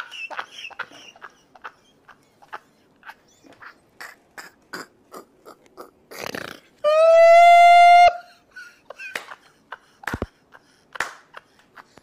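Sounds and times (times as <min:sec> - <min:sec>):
man laughing hard: 0:00.0 - 0:04.6, 0:06.8 - 0:12.0
hands clapping: 0:09.1 - 0:10.4, 0:11.0 - 0:12.0.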